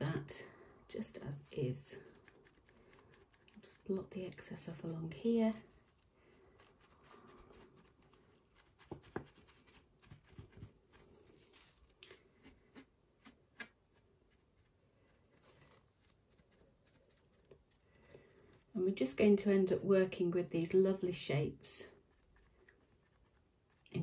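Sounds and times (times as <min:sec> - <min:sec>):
tissue dabbing wet paper: 0:01.0 - 0:18.9.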